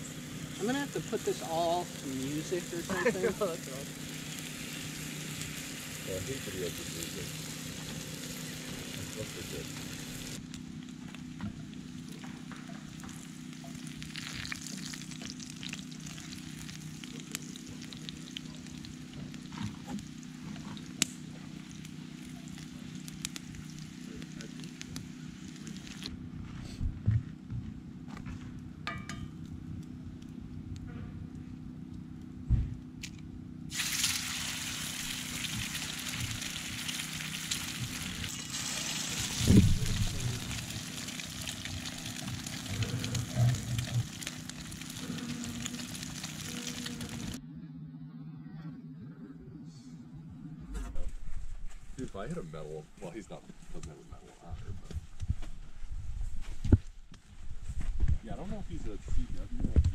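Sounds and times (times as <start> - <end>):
food sizzling in a skillet: 0.0 - 10.4, 12.8 - 26.1, 33.7 - 47.4.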